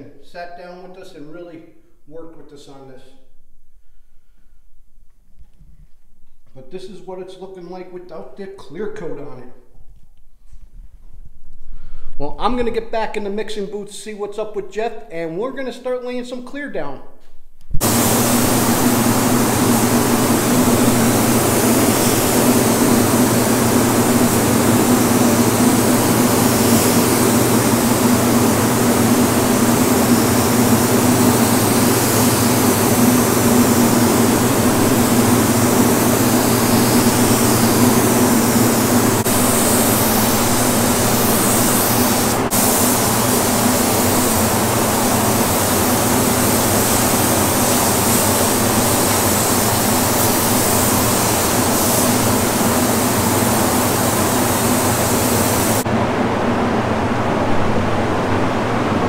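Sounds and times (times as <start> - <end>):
ventilation fans humming: 16.8 - 59.0
paint spray gun hissing: 17.8 - 55.9.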